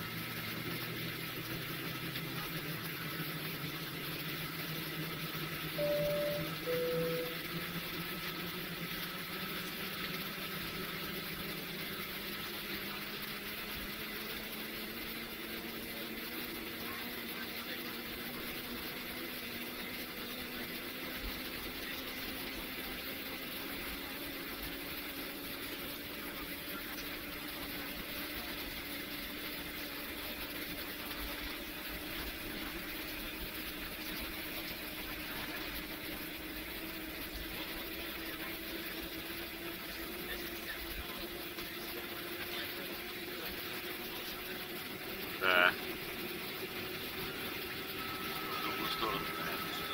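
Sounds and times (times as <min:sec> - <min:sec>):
faint rising engine tone: 0:00.0 - 0:12.4, 0:43.6 - 0:49.9
jet engines rumbling and hissing: 0:47.2 - 0:49.9.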